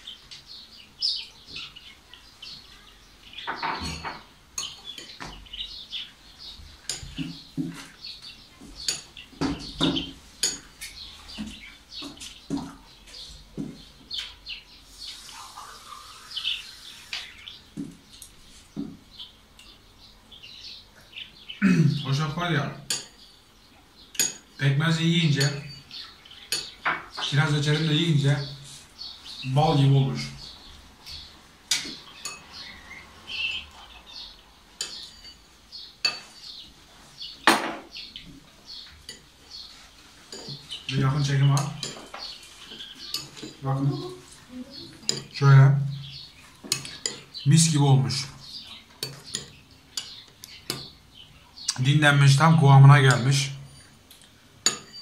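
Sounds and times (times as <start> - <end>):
spoons clinking in porcelain bowls: 3.7 - 5.2, 9.9 - 11.0, 22.9 - 23.2, 24.2 - 24.6, 25.4 - 27.3, 31.7 - 32.6, 34.8 - 36.4, 40.2 - 44.4, 45.0 - 45.4, 46.5 - 50.9, 53.7 - 55.0
metal spoon clinking porcelain bowl: 34.8 - 36.3, 43.1 - 43.6, 45.1 - 45.4, 49.0 - 50.9, 54.6 - 55.0.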